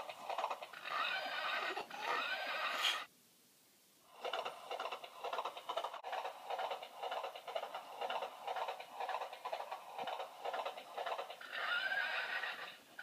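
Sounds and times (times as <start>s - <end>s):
galloping hoofbeats: 0.0s - 0.8s, 4.1s - 12.8s
recorded horse whinny: 0.4s - 3.1s, 11.1s - 13.0s.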